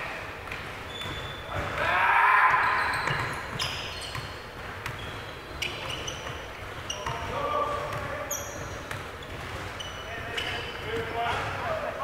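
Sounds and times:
sneakers squeaking: 0.0 - 12.0
basketball bouncing on hardwood: 2.5 - 5.3, 6.1 - 9.8.

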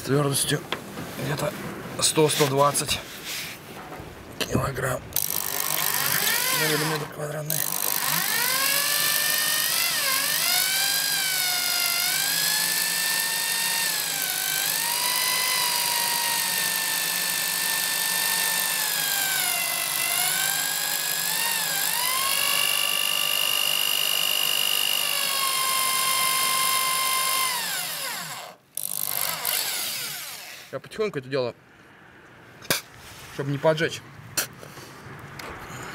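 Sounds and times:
drill motor whining: 5.2 - 30.7.

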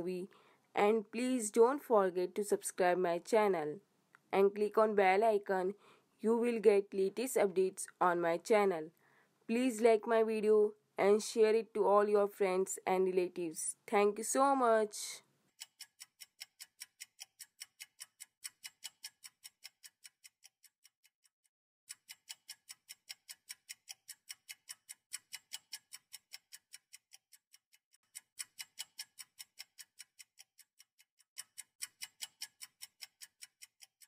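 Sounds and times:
fast high-pitched clock ticking: 15.5 - 21.0, 21.9 - 34.0.

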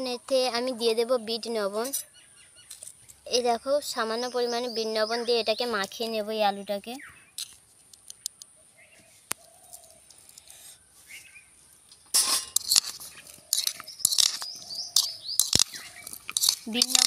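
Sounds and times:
fork scraping in bowl: 12.2 - 17.0.

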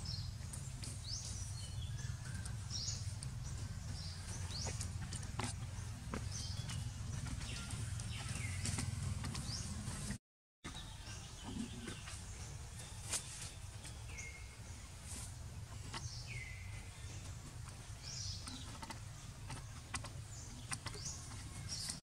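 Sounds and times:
steady low rumble: 0.0 - 10.2
birds chirping and calling: 0.0 - 22.0.

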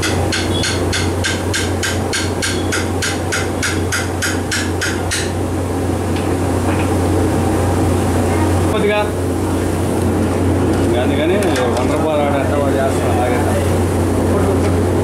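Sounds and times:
sharp hammering strikes: 0.0 - 5.4
steady low hum: 0.0 - 15.0.

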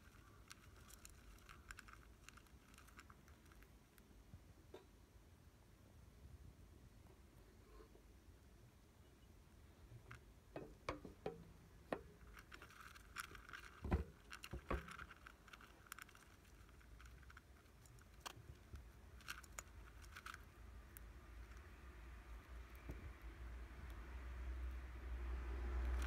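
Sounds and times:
hamster rustling through food: 0.0 - 4.4, 9.8 - 24.1.

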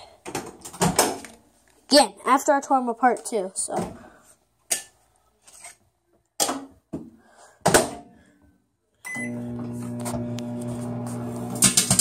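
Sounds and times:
microwave beep: 9.0 - 10.6
microwave oven humming: 9.1 - 12.0.

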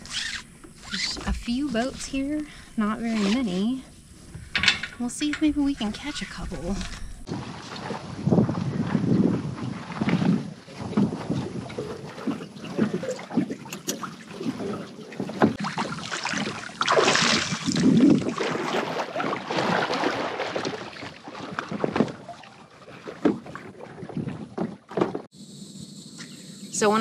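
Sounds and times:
water splashing and sloshing: 0.0 - 25.4
water rushing: 9.6 - 24.6
knocks against kayak hull: 24.2 - 25.3.

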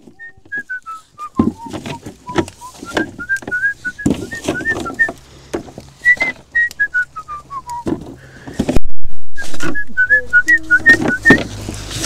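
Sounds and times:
footsteps: 0.0 - 12.0
person whistling a tune: 0.1 - 5.1, 6.0 - 7.9, 9.4 - 11.5.

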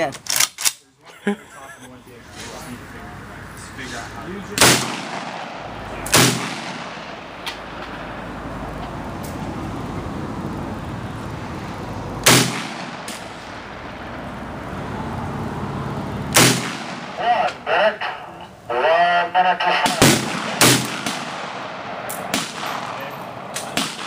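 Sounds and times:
steady background hiss: 0.8 - 24.0
rifle shots: 4.5 - 8.2, 12.2 - 14.0, 16.3 - 17.5, 19.7 - 24.0
fainter sharp cracks: 4.6 - 8.1, 19.7 - 24.0.

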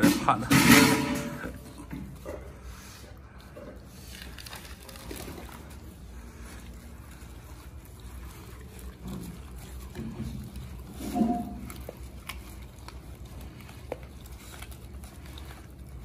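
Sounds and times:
dogs chewing and smacking: 1.4 - 16.0.

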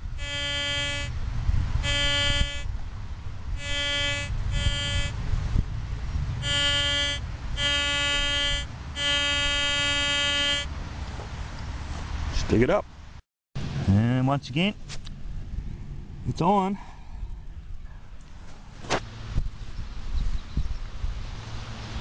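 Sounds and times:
metal detector tone: 1.8 - 2.7, 3.6 - 5.2, 6.4 - 10.7.

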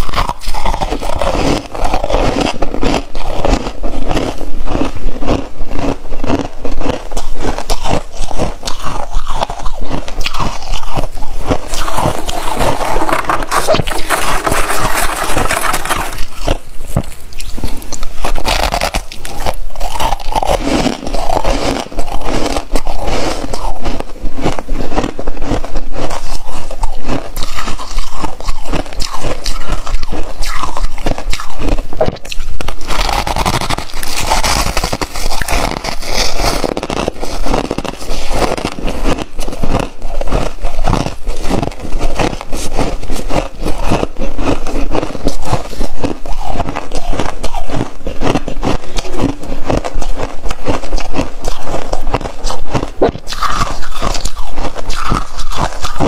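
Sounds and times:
frost and ice crunching: 0.0 - 56.0.

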